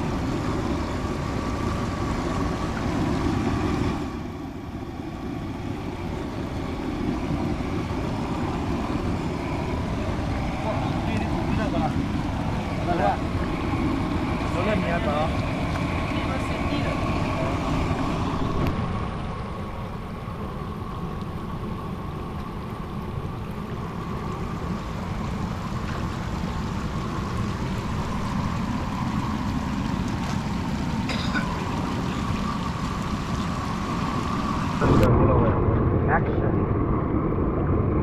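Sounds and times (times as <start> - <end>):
creek running over rocks: 0.0 - 34.9.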